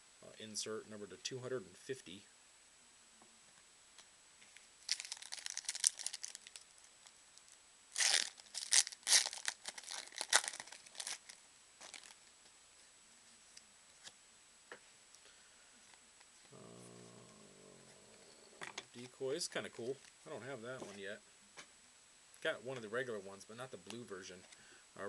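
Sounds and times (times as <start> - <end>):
foil crinkling: 4.8 - 6.7, 7.9 - 12.2
foil wrapper tearing: 4.9 - 6.7, 7.9 - 12.2.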